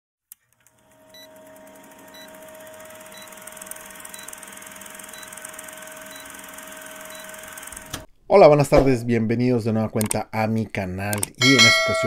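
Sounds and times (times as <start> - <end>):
film projector clatter: 0.4 - 8.1
steady hum: 0.9 - 8.1.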